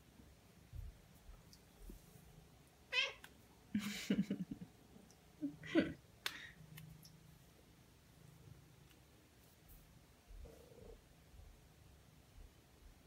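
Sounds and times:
cat meowing: 2.9s - 3.3s.

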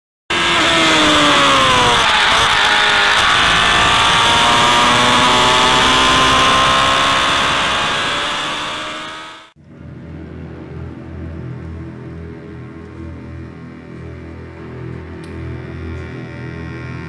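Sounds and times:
racing car engine revving high: 0.3s - 9.6s.

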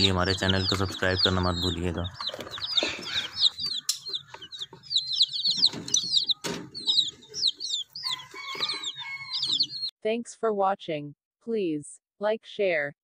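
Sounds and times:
chicks peeping: 0.0s - 9.9s.

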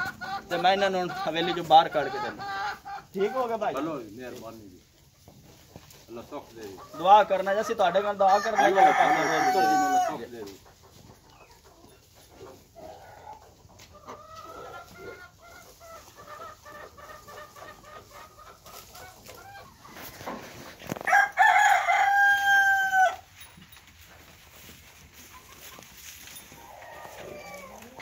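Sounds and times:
rooster clucking: 0.0s - 3.7s, 6.7s - 23.3s, 25.2s - 28.0s
rooster crowing: 8.3s - 10.2s, 21.0s - 23.3s.

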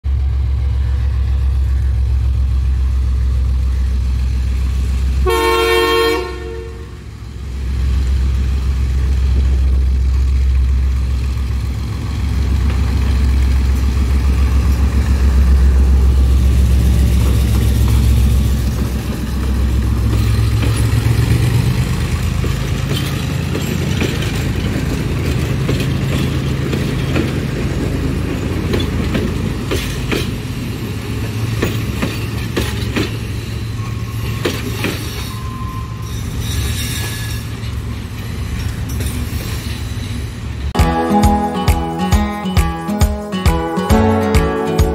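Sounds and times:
diesel locomotive engine: 0.0s - 44.9s
locomotive horn blast: 5.2s - 7.1s, 40.8s - 42.5s
wheels clicking over rail joints: 16.8s - 35.6s.

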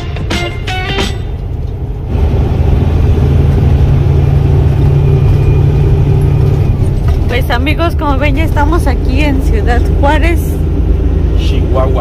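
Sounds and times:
guitar music: 0.0s - 1.5s
road noise: 0.0s - 12.0s
truck diesel engine from cab: 0.0s - 12.0s.

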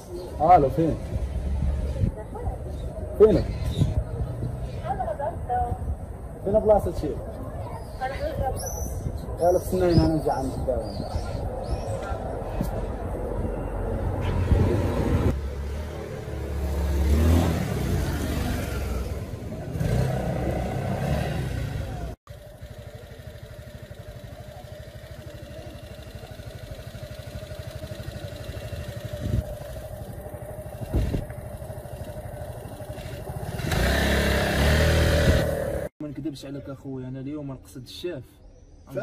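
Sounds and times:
street noise: 0.0s - 39.0s
scooter engine idling: 21.5s - 35.9s.

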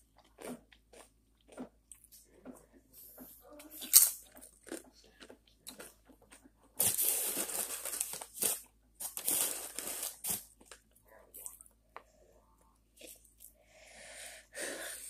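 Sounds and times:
plastic chip bag rustling: 6.8s - 10.7s.

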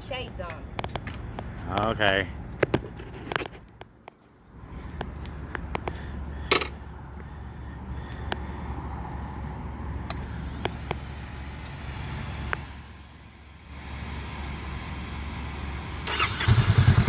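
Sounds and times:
motorcycle engine idling: 14.1s - 17.0s.

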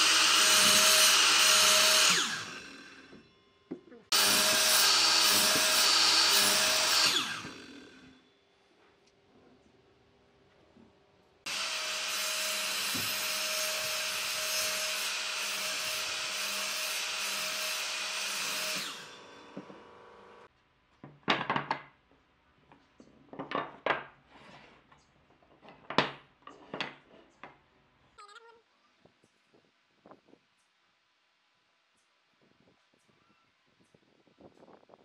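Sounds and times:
miter saw cutting wood: 0.0s - 3.3s, 4.1s - 8.2s, 11.5s - 20.5s.

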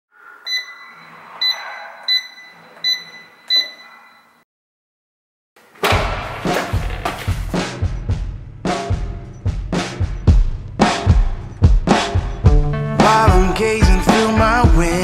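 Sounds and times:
keypad lock beeps: 0.5s - 4.4s
music with heavy drum beat: 6.0s - 15.0s.

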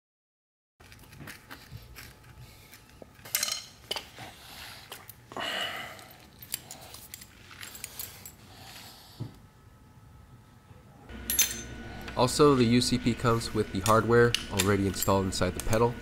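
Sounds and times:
small metallic clinks: 11.3s - 11.7s.

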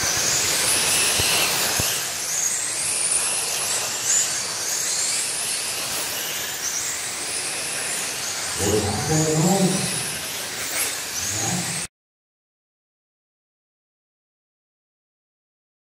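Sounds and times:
electric rc car motors whining: 0.0s - 11.9s
steady hiss: 0.0s - 11.9s.

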